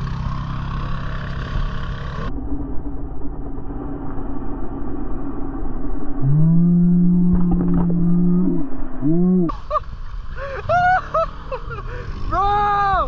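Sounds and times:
off-road vehicle engine revving: 0.0s - 2.3s.

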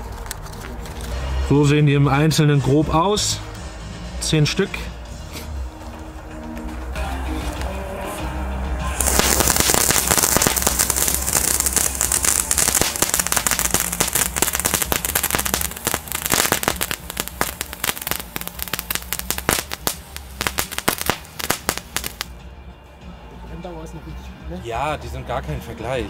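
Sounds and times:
fountain crackling pops: 9.0s - 22.3s
hiss of sparks: 9.0s - 22.3s.

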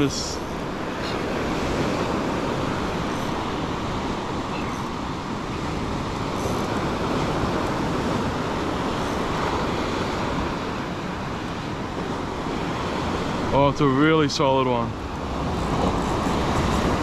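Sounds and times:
surf breaking on a beach: 0.0s - 17.0s
wind noise on microphone: 15.1s - 17.0s.

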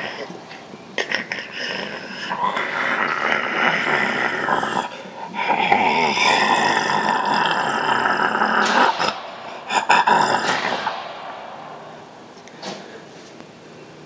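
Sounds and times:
rasping zombie growls: 1.0s - 11.3s.

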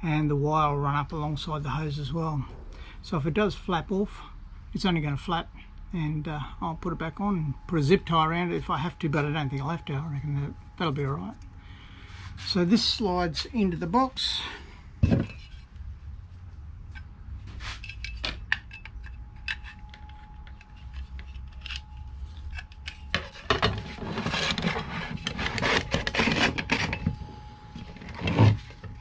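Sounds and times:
metal scraping on metal: 12.1s - 15.7s, 16.9s - 29.0s.

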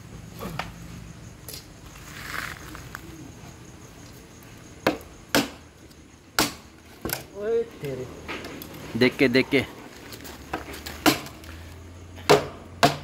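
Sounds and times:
machete chopping bamboo: 4.8s - 5.7s, 6.4s - 7.3s, 10.5s - 11.5s, 12.2s - 13.0s.

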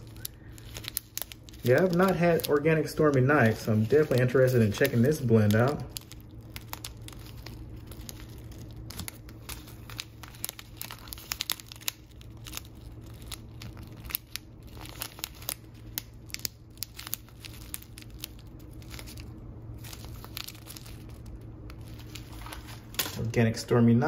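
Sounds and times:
dry tea leaves shifting: 0.0s - 23.2s
plastic pouch crinkling: 0.0s - 23.2s.

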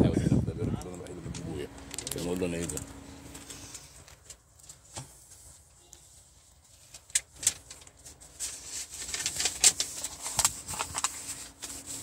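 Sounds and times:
plastic wrap crinkling: 6.4s - 12.0s.

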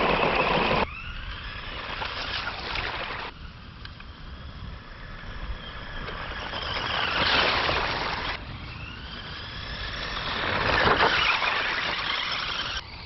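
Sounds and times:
electric motors whining: 0.0s - 13.0s.

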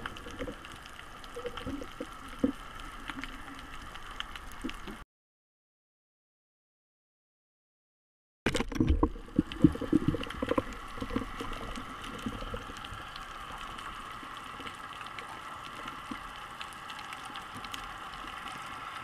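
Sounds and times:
faint scattered clicks: 0.0s - 5.0s, 9.4s - 19.0s
steady underwater hiss: 0.0s - 5.0s, 9.2s - 19.0s
underwater knocks and thumps: 8.5s - 12.7s.

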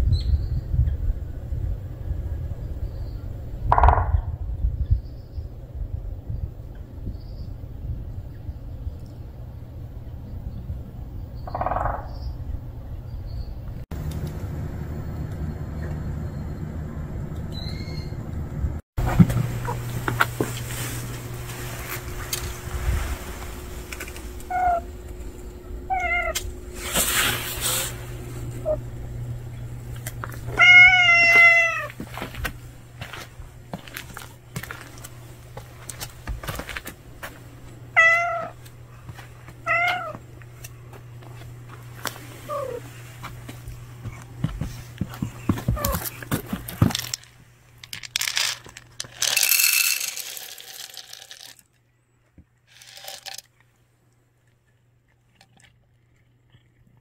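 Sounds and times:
cat meowing: 25.9s - 26.4s, 30.5s - 32.0s, 38.0s - 38.6s, 39.6s - 40.2s.

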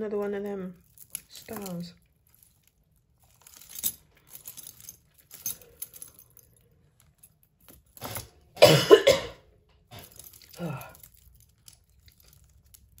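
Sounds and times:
jewellery beads and chains rattling: 0.0s - 8.6s, 9.9s - 13.0s
person coughing: 8.6s - 9.4s.

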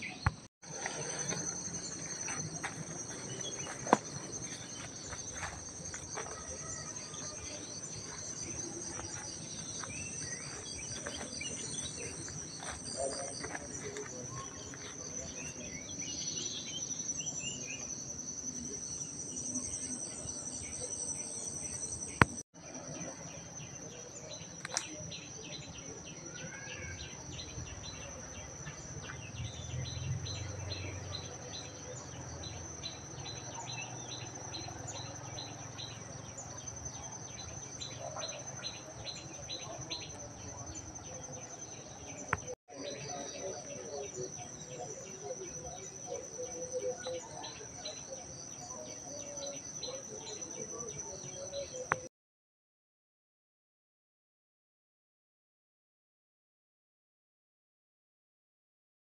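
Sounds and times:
birds chirping: 0.0s - 22.4s, 23.0s - 52.1s.

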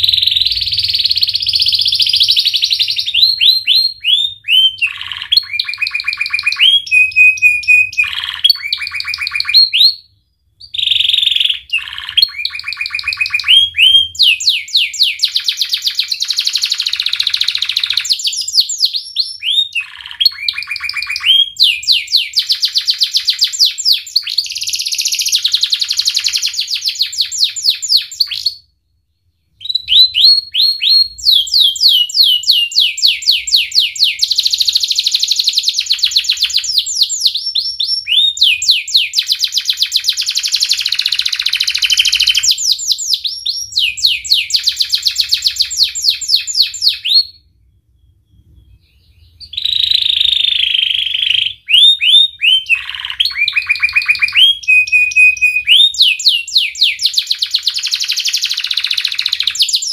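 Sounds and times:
canary singing trills: 0.0s - 59.9s.

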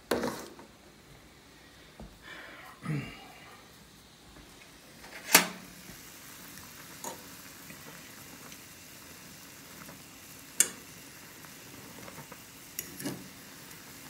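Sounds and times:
water boiling and bubbling: 3.0s - 14.0s.

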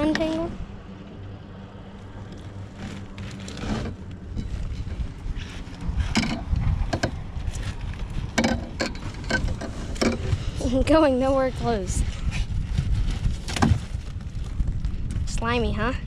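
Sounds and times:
wind rumbling on microphone: 0.0s - 16.0s
knocks and rustles of net: 12.2s - 15.0s.

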